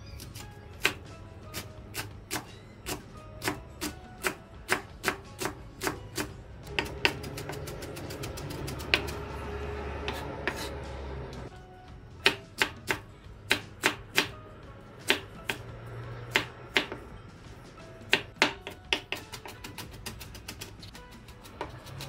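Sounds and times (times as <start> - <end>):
background music: 0.0 - 22.0
knife chopping on wooden board: 0.8 - 9.3, 10.0 - 10.8, 12.2 - 14.4, 15.0 - 17.0, 18.1 - 22.0.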